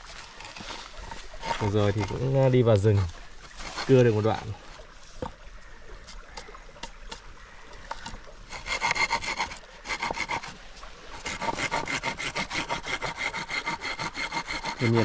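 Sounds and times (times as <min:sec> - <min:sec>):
hand saw cutting bamboo: 0:00.4 - 0:02.5, 0:08.5 - 0:15.0.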